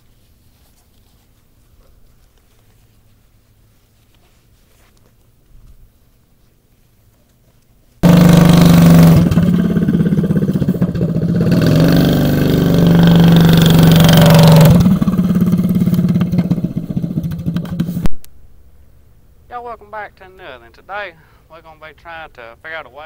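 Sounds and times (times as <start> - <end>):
small engine running: 8.0 - 18.1.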